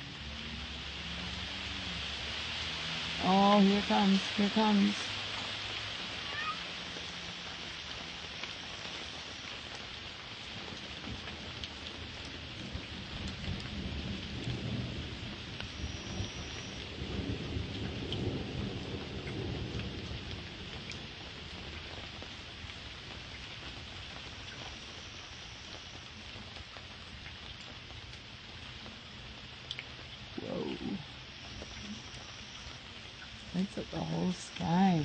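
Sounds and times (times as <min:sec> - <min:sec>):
steady rain falling: 0:00.0 - 0:35.0
rolling thunder: 0:12.6 - 0:21.8.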